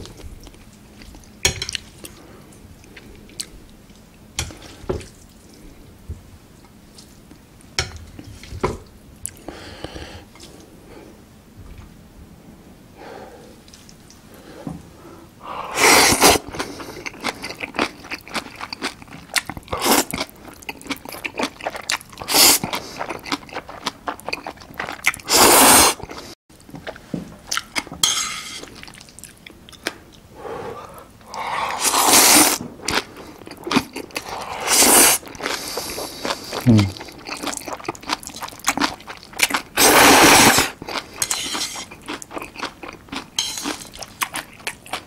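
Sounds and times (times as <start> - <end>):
loud noodle slurps: 15.7 - 16.4, 22.3 - 22.6, 25.2 - 26.0, 31.3 - 32.6, 34.2 - 36.1, 39.8 - 40.8
wet chewing: 31.3 - 39.8, 40.5 - 45.0.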